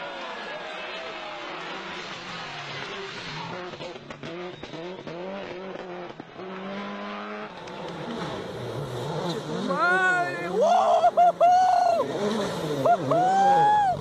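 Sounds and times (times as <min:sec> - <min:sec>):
rally car engine revving: 0:01.0 - 0:14.0.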